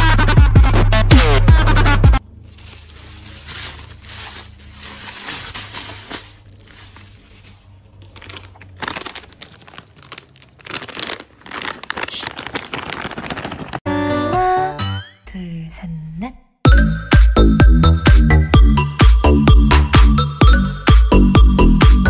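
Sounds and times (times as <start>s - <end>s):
plastic bag crinkling: 2.2s - 13.8s.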